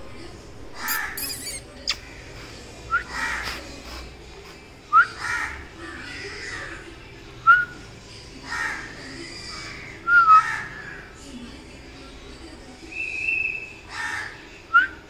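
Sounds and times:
crows cawing: 5.2 - 5.6, 8.4 - 11.0, 13.9 - 14.4.

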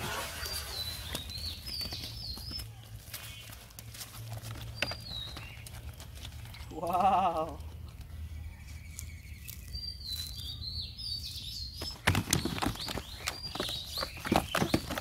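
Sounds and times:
birds chirping: 0.0 - 15.0
fish thrashing in plastic crate: 11.9 - 15.0.

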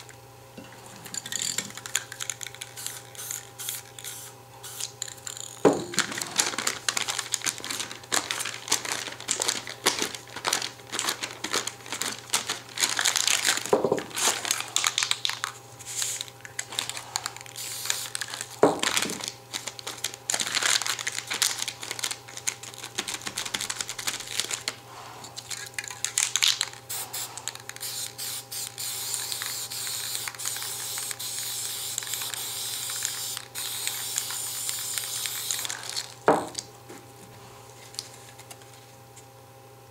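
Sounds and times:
aluminium foil crumpling: 1.2 - 36.7, 37.8 - 38.9
aerosol spray can hissing: 2.8 - 4.9, 26.9 - 35.8.

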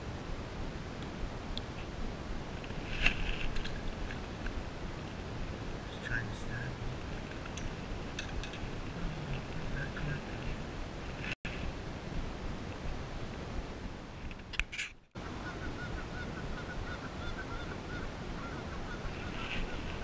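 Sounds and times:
steady rushing background noise: 0.0 - 15.3
geese honking: 15.2 - 20.0.

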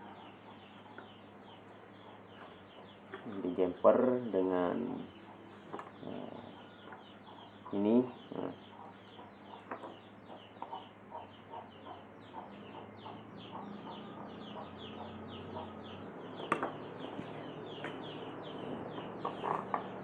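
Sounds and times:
birds chirping: 0.0 - 20.0
bird clucking: 5.0 - 20.0.

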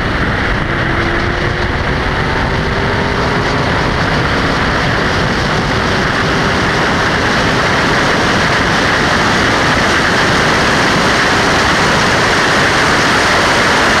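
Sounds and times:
race car engine at speed: 0.0 - 14.0
wind rush: 0.0 - 14.0.

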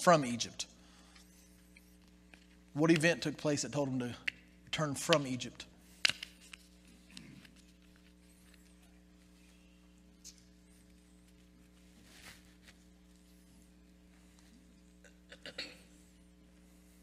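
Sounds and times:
electrical mains hum: 0.0 - 17.0.

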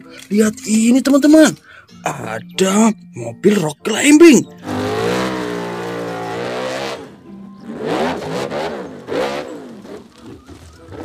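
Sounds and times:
buggy engine revving: 4.1 - 11.0.

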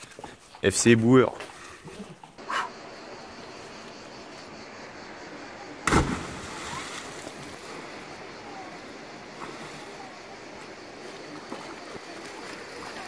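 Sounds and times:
outdoor background hiss: 0.0 - 13.0
person splashing into water: 5.8 - 7.6.

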